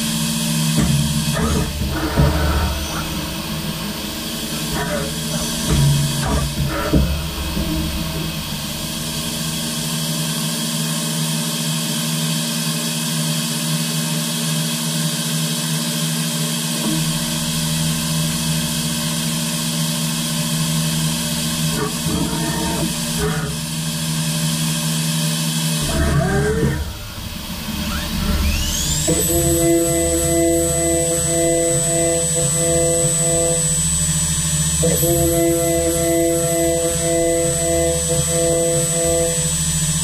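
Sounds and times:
deep machine rumble: 0.0s - 10.7s, 16.8s - 24.6s
machine hum with high hiss: 0.0s - 40.0s
short whirs of axis movement: 27.7s - 29.3s.

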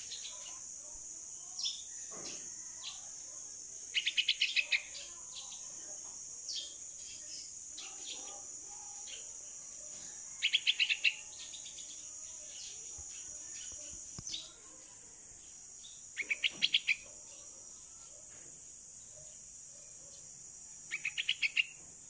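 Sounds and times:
bird fledgling chirping: 16.2s - 17.0s.

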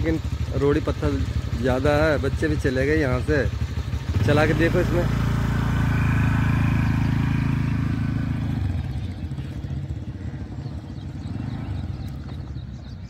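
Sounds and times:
scooter engine running: 0.0s - 13.0s.

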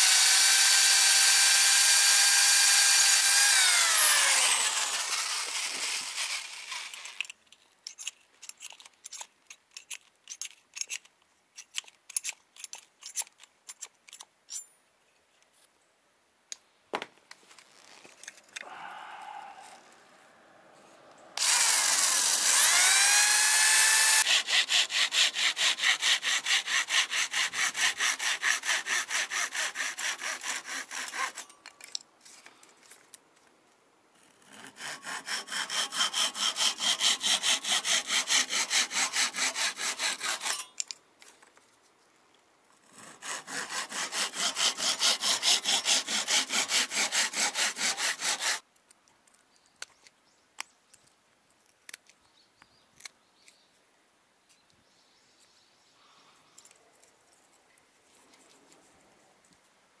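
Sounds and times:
hand saw cutting plywood: 0.0s - 7.2s, 21.4s - 31.5s, 34.3s - 40.8s, 42.8s - 48.6s.

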